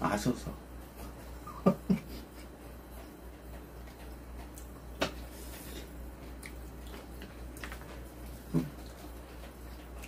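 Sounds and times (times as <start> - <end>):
steady low hum: 0.0 - 10.0
eating with chopsticks: 2.9 - 10.0.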